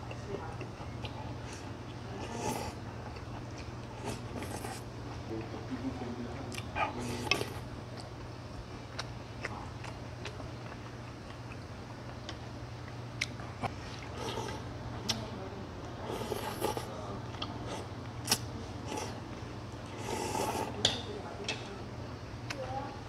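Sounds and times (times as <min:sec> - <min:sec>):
chewing: 0:00.1 - 0:05.6, 0:06.5 - 0:15.3, 0:16.1 - 0:21.6.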